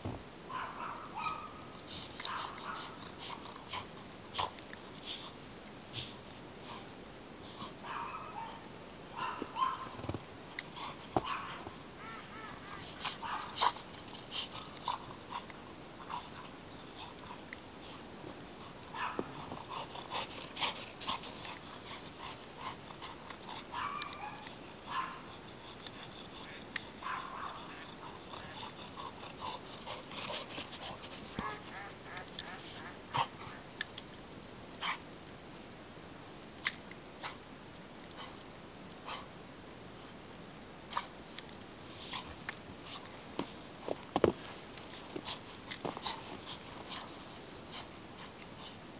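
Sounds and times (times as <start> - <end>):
small dog yapping: 0.5 - 1.6, 7.8 - 10.0, 23.7 - 25.3
geese calling: 11.2 - 13.0.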